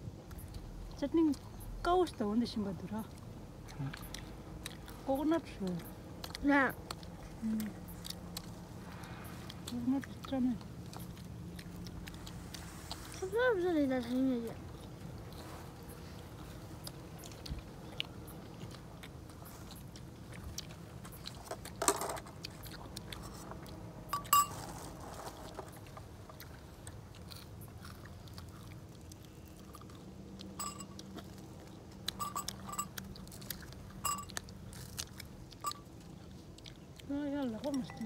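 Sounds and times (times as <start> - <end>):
chewing and crunching: 0.0 - 38.0
faint low hum: 0.0 - 38.0.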